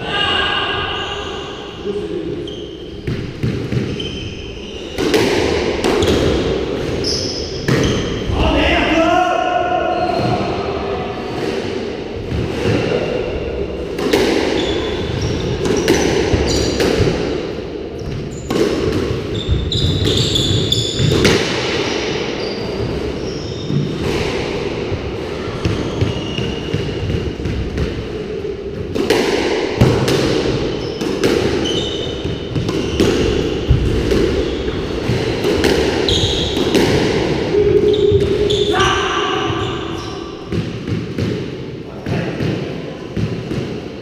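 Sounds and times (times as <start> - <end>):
shoes squeaking on wooden floor: 2.4 - 5.0, 6.9 - 8.2, 14.5 - 16.8, 19.3 - 21.2, 22.4 - 23.9, 25.4 - 26.7, 30.7 - 36.7
squash ball hitting rackets and walls: 2.9 - 8.6, 10.1 - 44.0.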